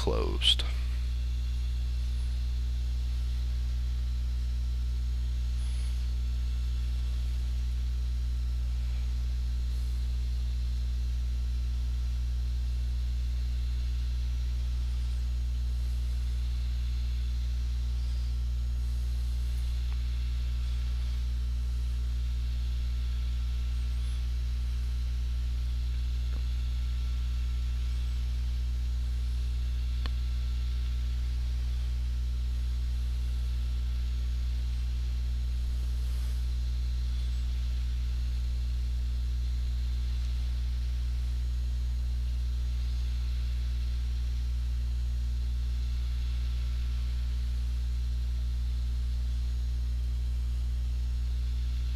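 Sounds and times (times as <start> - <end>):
electrical mains hum: 0.0 - 51.9
faint click: 30.0 - 30.2.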